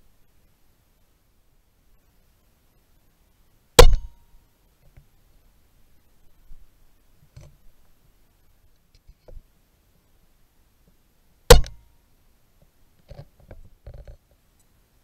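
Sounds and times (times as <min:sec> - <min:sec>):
faint clicks: 0:12.6 - 0:14.8.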